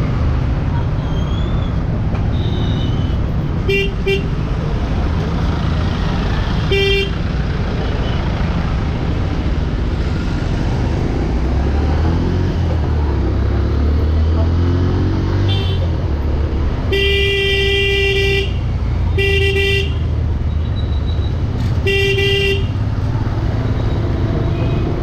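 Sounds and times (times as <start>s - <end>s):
vehicle horn beeps: 2.3s - 4.3s.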